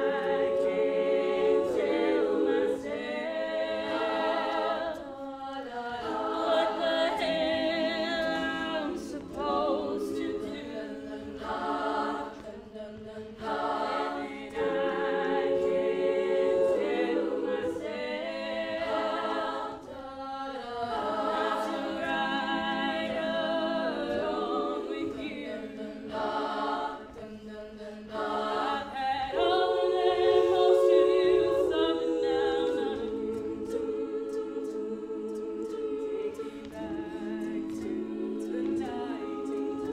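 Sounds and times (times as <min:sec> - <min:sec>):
women's a cappella group singing: 0:00.0 - 0:39.9.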